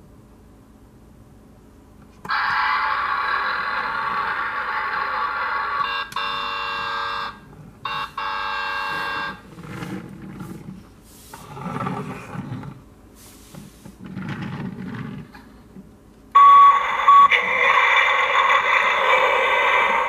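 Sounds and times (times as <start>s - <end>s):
loud steady electronic noise: 2.2s - 10.2s, 16.3s - 20.0s
toy wheels rolling on wood floor: 8.9s - 10.8s, 14.0s - 15.5s
toy short beep: 16.4s - 17.3s.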